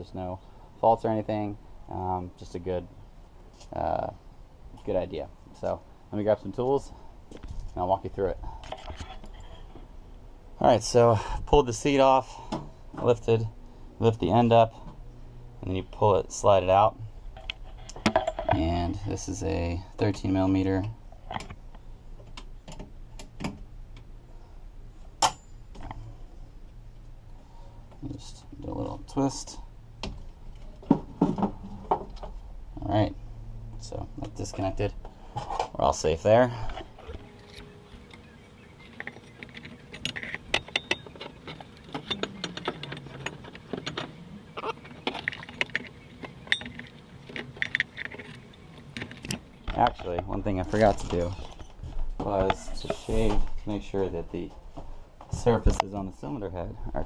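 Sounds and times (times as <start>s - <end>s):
small parts clicking and rattling: 38.8s - 50.0s.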